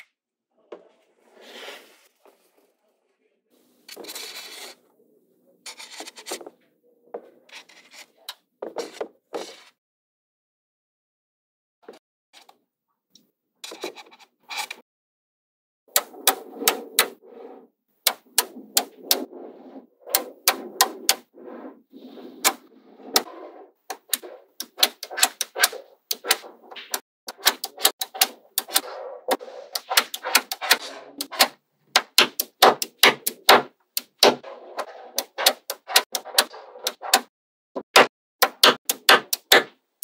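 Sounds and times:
magnetic balls snapping together: 18.0s - 19.2s, 23.9s - 34.4s, 38.4s - 39.7s.

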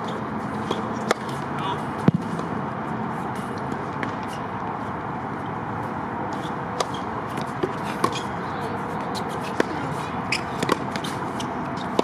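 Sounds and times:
outdoor background noise: 0.0s - 12.0s
tennis ball strike: 0.1s - 2.6s, 3.3s - 4.3s, 6.3s - 8.3s, 9.0s - 12.0s.

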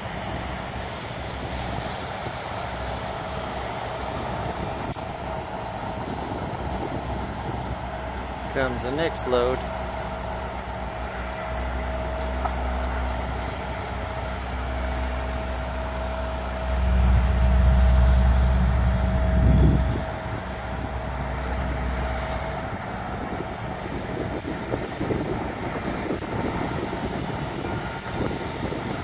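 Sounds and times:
diesel engines droning: 0.0s - 29.0s
thin steady whine: 0.0s - 29.0s.

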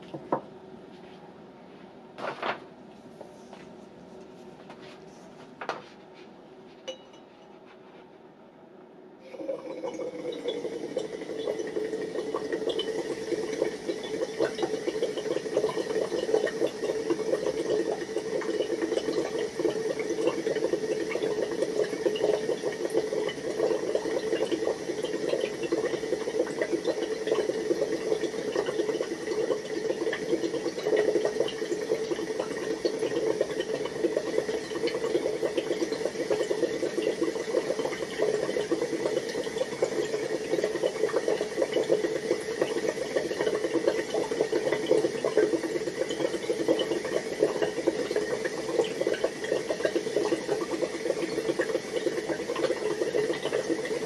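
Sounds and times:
gas bubbling through water: 9.2s - 54.0s.

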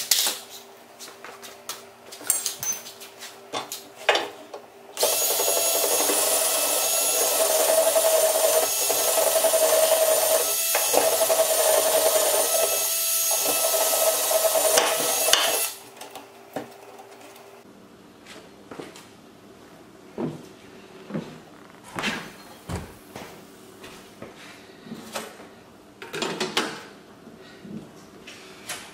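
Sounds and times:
cordless drill drilling into wood: 5.0s - 15.8s.

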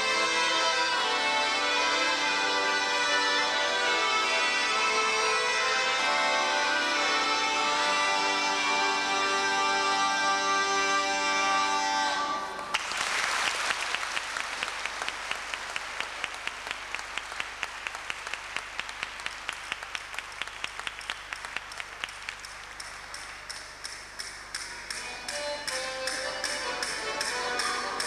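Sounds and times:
audience applause: 12.6s - 23.8s
rhythmic clapping in unison: 12.7s - 28.0s.

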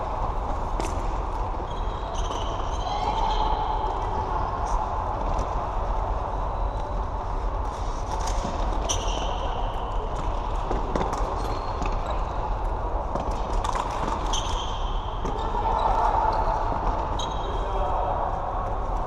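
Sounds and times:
shoe squeaks on court floor: 1.6s - 3.4s, 8.8s - 9.5s, 14.2s - 16.4s, 17.2s - 17.7s.

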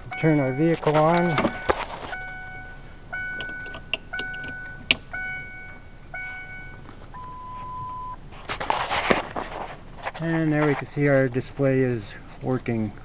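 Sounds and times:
dashboard warning chime: 0.0s - 8.2s
steady beep: 0.0s - 8.2s.

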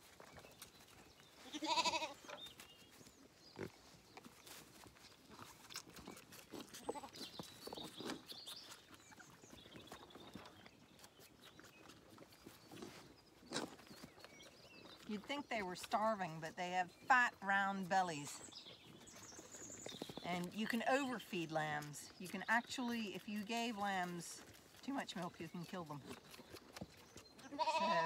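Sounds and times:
lambs jostling and feeding: 0.0s - 28.0s
lamb bleating loudly: 1.4s - 2.2s, 27.5s - 28.0s.

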